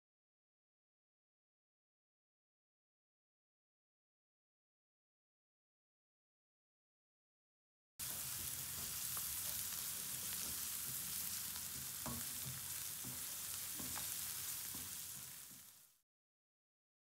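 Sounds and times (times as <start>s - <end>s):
spatula scraping and tapping pan: 8.0s - 15.8s
food sizzling in hot oil: 8.0s - 16.0s.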